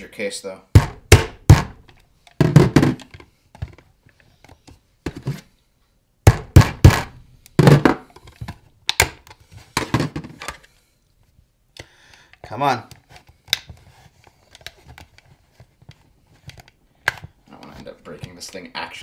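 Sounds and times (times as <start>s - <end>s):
screwdriver struck into plastic casing: 0.8s - 3.1s, 6.3s - 7.1s.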